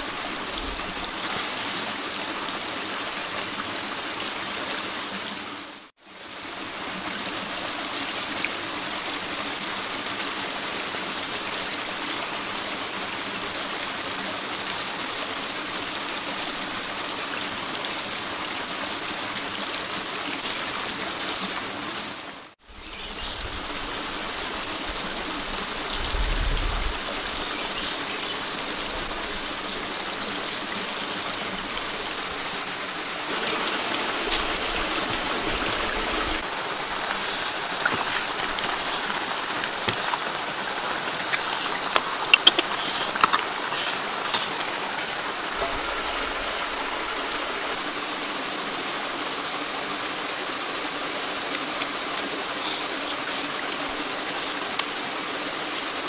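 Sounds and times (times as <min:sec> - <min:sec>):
sharp crackling pops: 0:36.9 - 0:44.7.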